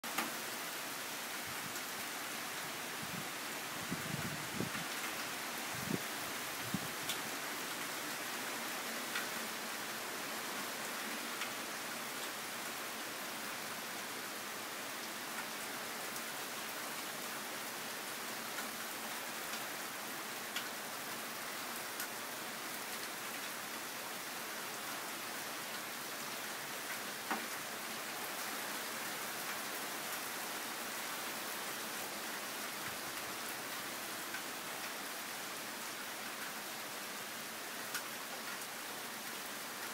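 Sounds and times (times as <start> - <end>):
steady rain on pavement and cars: 0.0 - 39.9
louder raindrop ticks: 7.0 - 7.2, 11.4 - 11.6, 20.5 - 20.7, 34.3 - 35.0, 37.9 - 38.7.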